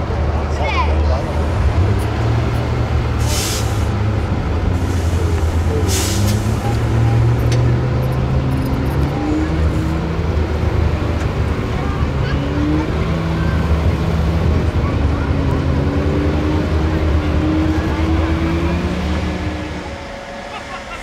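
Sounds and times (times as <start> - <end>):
truck diesel engine under load: 0.0 - 21.0
short air hisses: 3.2 - 3.9, 5.8 - 6.6.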